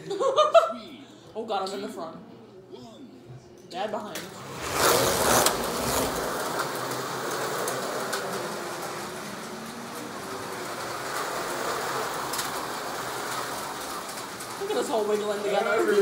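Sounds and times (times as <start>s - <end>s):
slot cars whirring: 4.2s - 16.0s.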